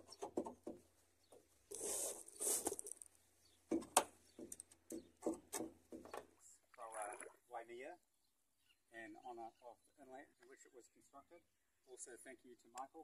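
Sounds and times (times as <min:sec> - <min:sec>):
rope rustling and scraping: 0:01.6 - 0:03.2.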